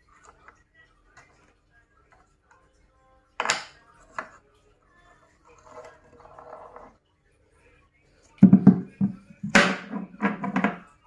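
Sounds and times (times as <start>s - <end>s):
potato knocking in plastic tub: 8.4s - 10.8s.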